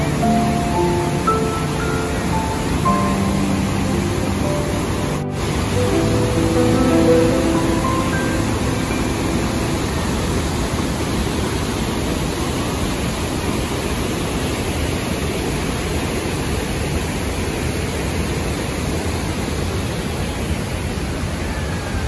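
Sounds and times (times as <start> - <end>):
whitewater rushing over rocks: 0.0 - 21.7.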